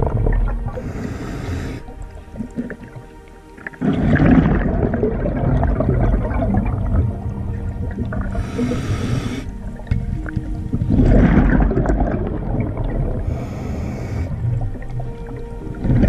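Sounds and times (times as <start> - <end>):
diver's exhaled bubbles gurgling: 0.0 - 16.0
high hiss: 0.8 - 1.9, 8.4 - 9.5, 13.3 - 14.4.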